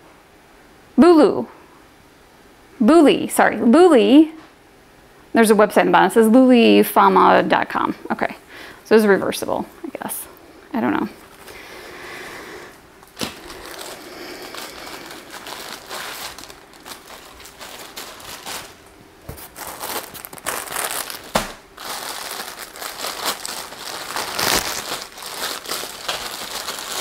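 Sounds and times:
plastic packaging crinkling: 0:13.0 - 0:27.0.

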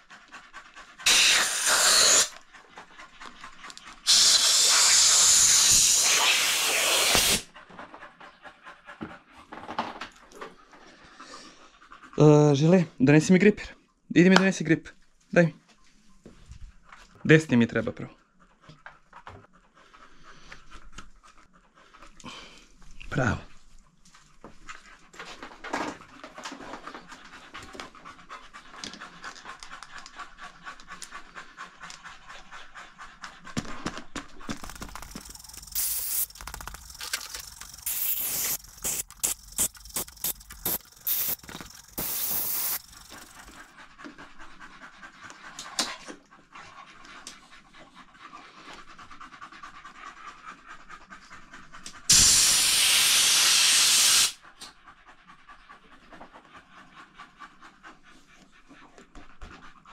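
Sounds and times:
dog panting: 0:00.0 - 0:14.0, 0:15.6 - 0:52.2, 0:54.4 - 0:59.9
compressed air hisses: 0:01.0 - 0:02.4, 0:04.1 - 0:07.5, 0:34.8 - 0:36.4, 0:37.4 - 0:43.5, 0:52.1 - 0:54.4
air blow gun blast: 0:01.1 - 0:02.3, 0:04.1 - 0:07.5, 0:52.1 - 0:54.4.

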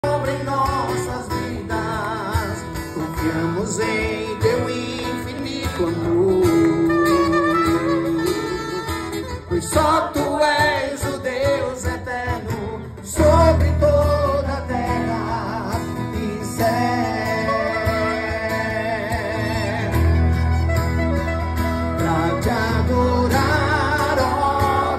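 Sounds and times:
acoustic guitar: 0:00.0 - 0:24.9
person singing: 0:00.0 - 0:24.9
woodwind melody: 0:06.4 - 0:10.3, 0:16.9 - 0:24.9.

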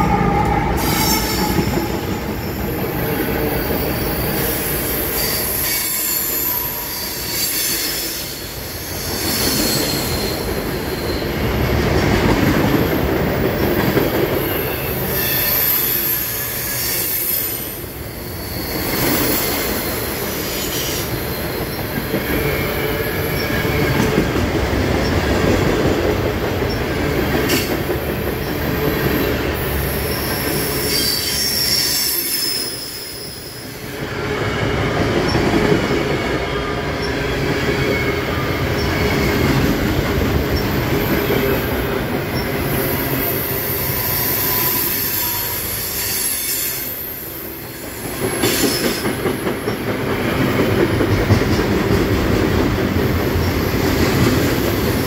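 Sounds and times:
high-pitched wheel squeal: 0:00.0 - 0:11.4, 0:42.4 - 0:47.2
freight train rumbling: 0:00.0 - 0:55.0.

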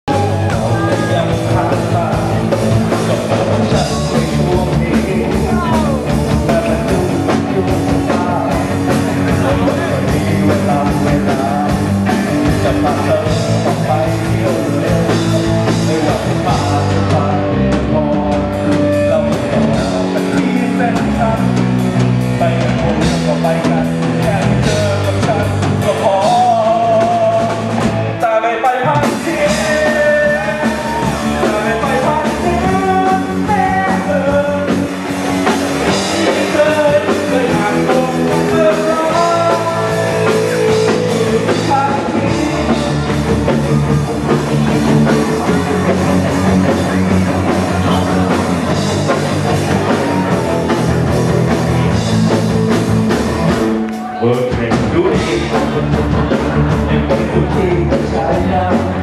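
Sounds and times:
drum beat: 0:00.0 - 0:17.4, 0:28.9 - 0:59.0
rock song with singer: 0:00.0 - 0:59.0.

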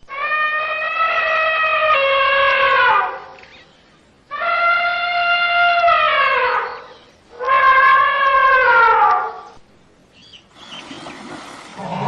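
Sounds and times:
elephant trumpeting: 0:00.1 - 0:03.4, 0:04.3 - 0:09.5.

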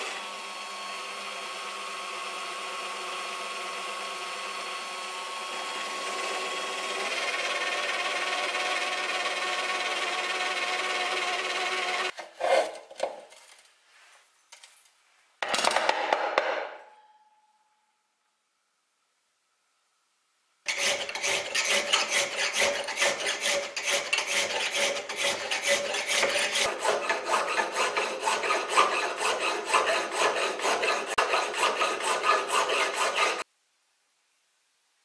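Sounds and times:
hand file rasping on steel: 0:20.7 - 0:33.4.

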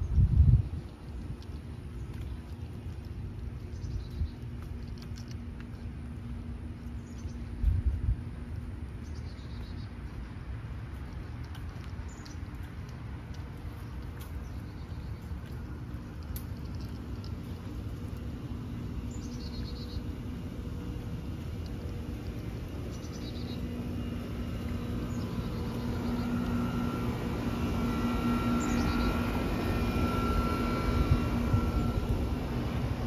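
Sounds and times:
low rumble: 0:00.0 - 0:33.0
steady mechanical hum: 0:00.0 - 0:33.0
bird chirping: 0:19.1 - 0:20.2, 0:22.9 - 0:23.7, 0:28.5 - 0:29.2.

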